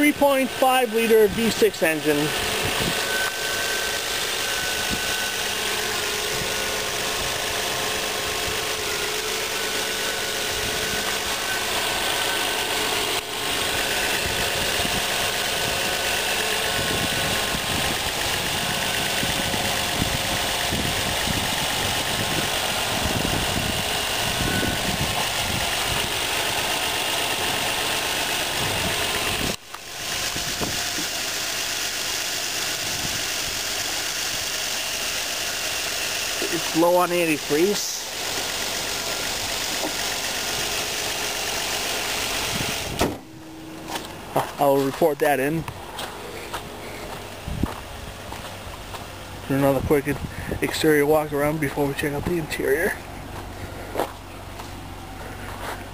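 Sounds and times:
car engine idling: 0:00.0 - 0:55.9.

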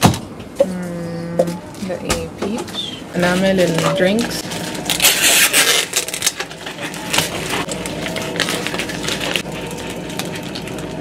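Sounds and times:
plastic packaging crinkling: 0:03.2 - 0:11.0.

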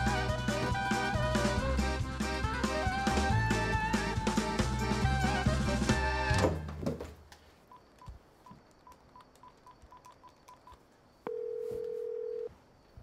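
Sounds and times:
phone ringing tone: 0:11.3 - 0:12.5.

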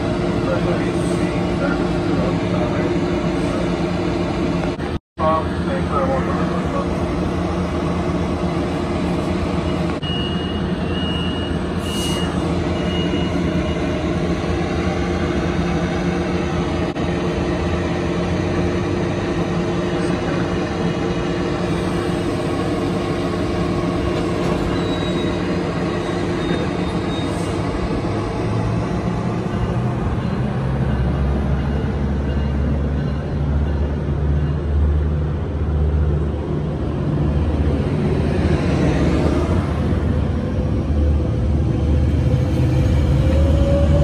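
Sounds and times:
short high beeps: 0:10.0 - 0:13.4
train equipment droning: 0:35.7 - 0:44.0.

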